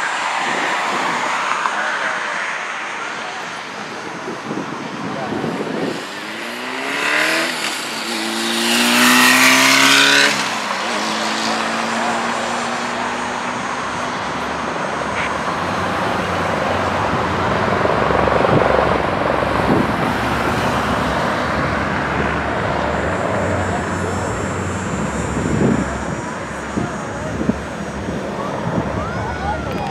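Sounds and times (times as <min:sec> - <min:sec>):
helicopter rotor and turbine: 0:16.4 - 0:20.5.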